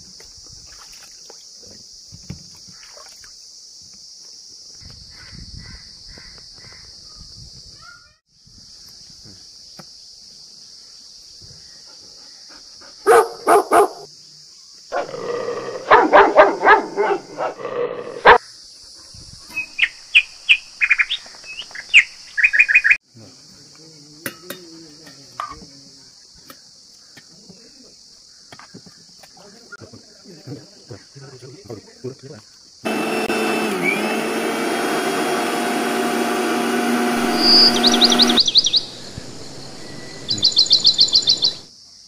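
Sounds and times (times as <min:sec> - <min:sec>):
steady high-pitched hiss: 0:08.3 - 0:13.1, 0:14.0 - 0:14.9, 0:37.2 - 0:42.0
dogs barking: 0:13.0 - 0:14.1, 0:14.9 - 0:18.4
high bird chirps: 0:37.2 - 0:41.7.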